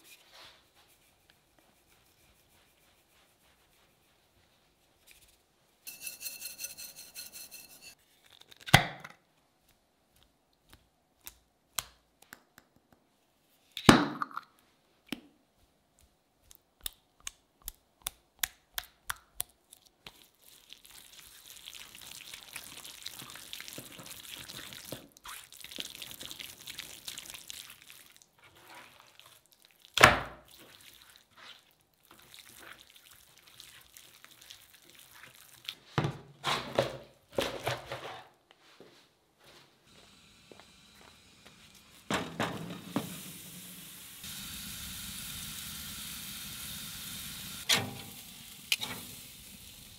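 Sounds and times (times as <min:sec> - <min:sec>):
hands rubbing wet meat: 0:00.0 - 0:05.4, 0:19.5 - 0:36.0.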